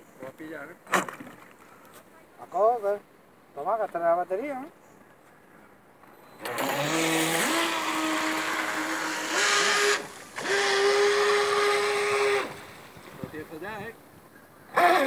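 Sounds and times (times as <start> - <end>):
electric motor whine: 6.4 - 12.9.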